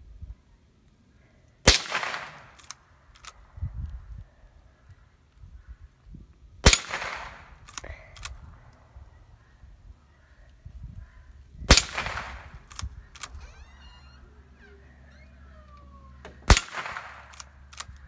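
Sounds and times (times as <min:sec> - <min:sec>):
rifle shots echoing: 0:01.6 - 0:02.8, 0:06.6 - 0:07.8, 0:11.7 - 0:13.4, 0:16.3 - 0:18.0
rifle lever clicks: 0:12.6 - 0:13.5, 0:16.2 - 0:18.0.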